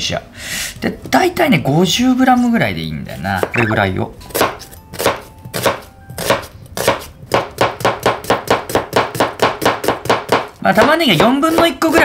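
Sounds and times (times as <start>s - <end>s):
knife chopping on cutting board: 4.3s - 12.0s.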